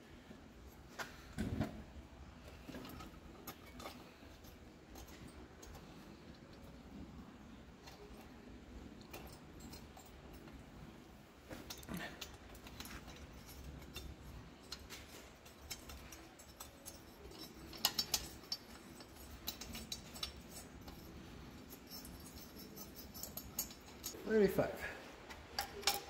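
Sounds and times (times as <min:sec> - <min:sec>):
metal bolts clicking and clinking: 0:00.7 - 0:26.0.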